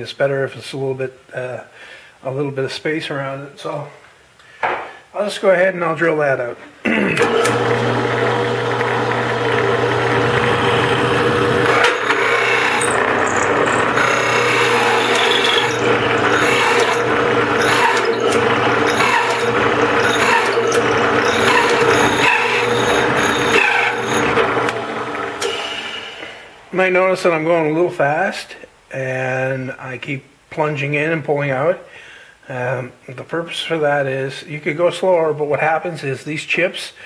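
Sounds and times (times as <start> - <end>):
hole saw cutting wood: 7.2 - 26.5
drill press motor hum: 7.2 - 26.7.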